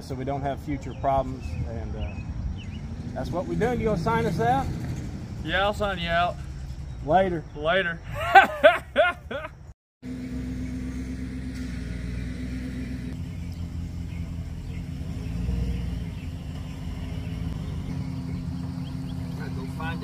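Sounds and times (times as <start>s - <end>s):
pickup truck engine idling: 10.1s - 20.0s.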